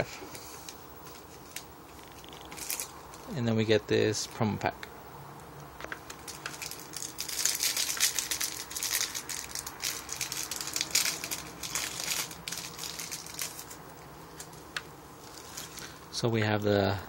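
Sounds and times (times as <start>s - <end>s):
plastic wrapper crinkling: 0.6s - 3.4s, 5.9s - 16.0s.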